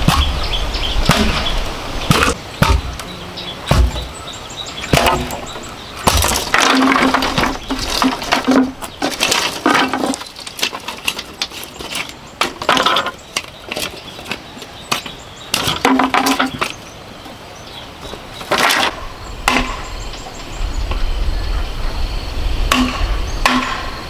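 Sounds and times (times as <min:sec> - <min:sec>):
bamboo cracking and splintering: 0:04.9 - 0:16.7.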